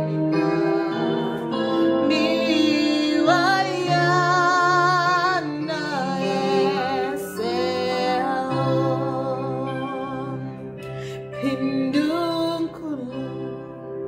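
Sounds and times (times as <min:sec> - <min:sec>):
sustained instrumental backing: 0:00.0 - 0:11.6
woman singing worship song: 0:00.0 - 0:13.6.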